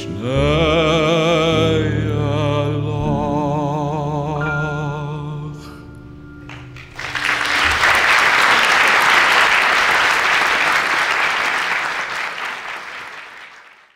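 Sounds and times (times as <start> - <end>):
audience applause: 6.5 - 13.9.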